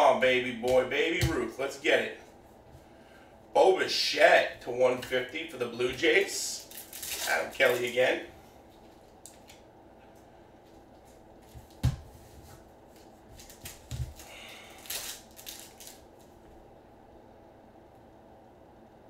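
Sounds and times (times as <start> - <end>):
trading cards rustling and clicking: 13.4 - 16.0.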